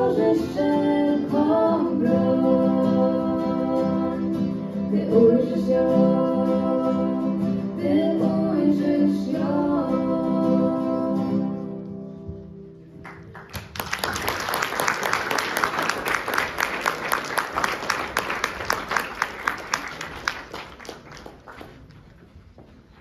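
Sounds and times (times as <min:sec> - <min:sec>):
audience applauding: 0:13.0 - 0:22.3.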